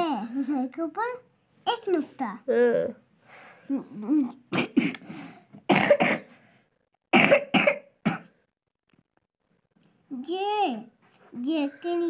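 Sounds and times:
person coughing: 4.5 - 5.0, 5.7 - 6.4, 7.2 - 8.4.

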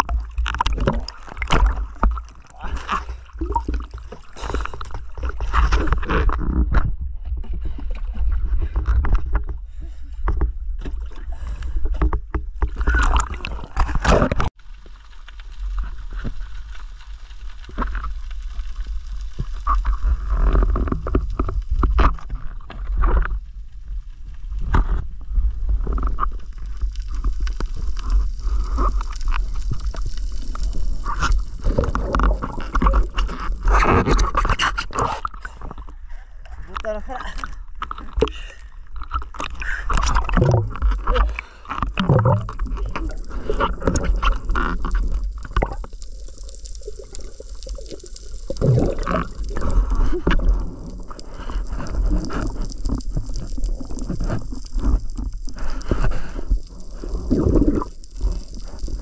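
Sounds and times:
low rumble of water: 0.0 - 59.0
water sloshing and splashing: 0.0 - 59.0.

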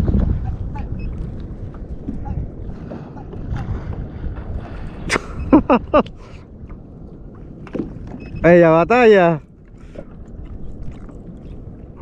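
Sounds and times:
water around kayak: 0.0 - 12.0
wind on microphone: 0.0 - 12.0.

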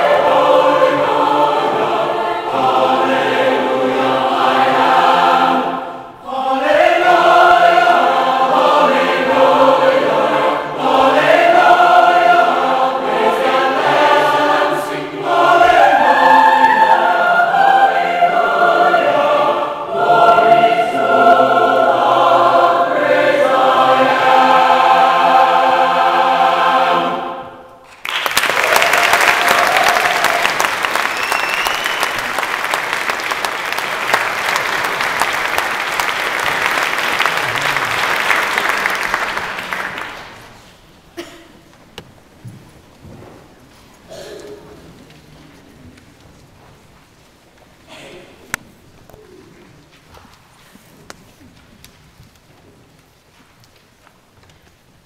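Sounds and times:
mixed choir singing: 0.0 - 27.8
audience applause: 27.9 - 40.6.

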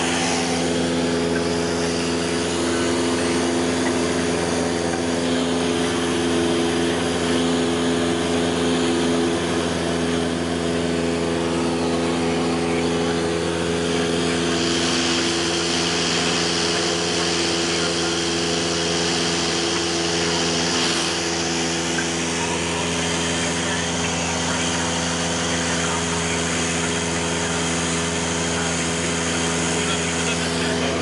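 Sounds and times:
air rushing over airframe: 0.0 - 4.9
aircraft engine droning: 0.0 - 31.0.

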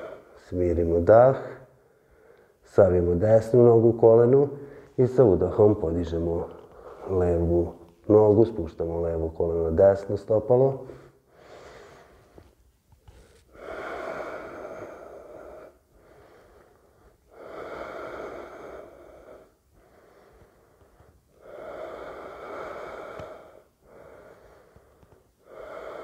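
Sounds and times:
man breathing deeply: 0.0 - 0.4, 1.6 - 2.6, 4.6 - 5.0, 6.5 - 8.0, 10.9 - 26.0.

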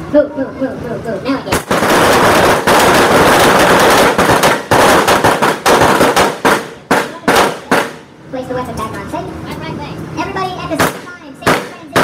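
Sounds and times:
rifle gunfire: 1.5 - 8.0.

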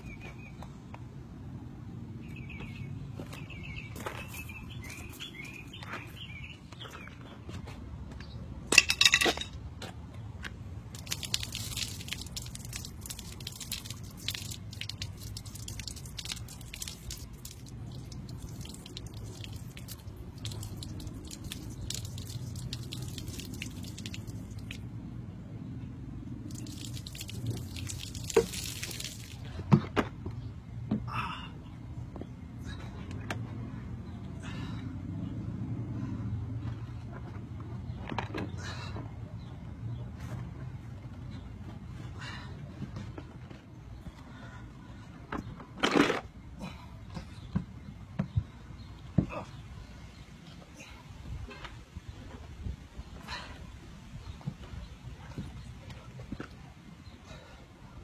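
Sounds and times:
water splashing and dripping: 10.9 - 24.9, 26.4 - 29.5.

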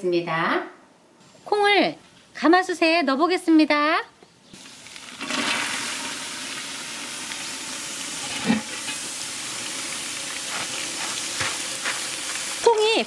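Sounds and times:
soybeans pouring into a cauldron: 4.6 - 13.0.

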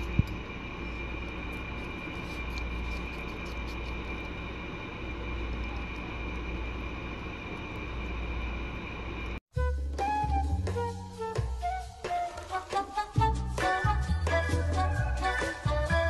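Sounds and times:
guinea pigs chewing vegetables: 1.4 - 4.3.

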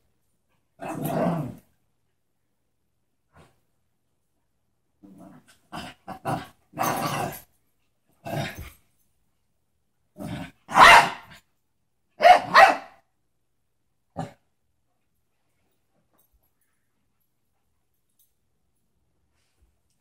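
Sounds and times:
dogs barking: 10.8 - 11.2.

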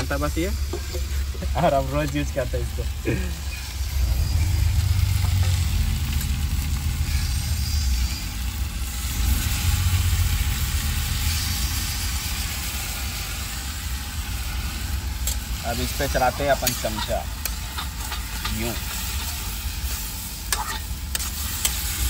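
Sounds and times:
low rumble: 0.0 - 15.2
vegetables sizzling in oil: 0.0 - 22.0.

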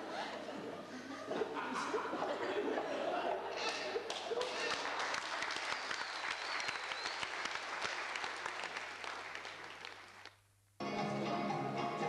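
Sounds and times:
audience applauding: 3.6 - 10.4
music: 10.8 - 12.0.

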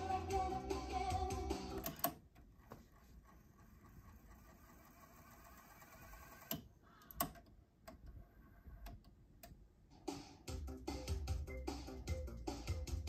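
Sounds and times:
music playing from tape: 0.0 - 2.2, 9.9 - 13.0
tape deck rewinding whir: 0.0 - 7.4.

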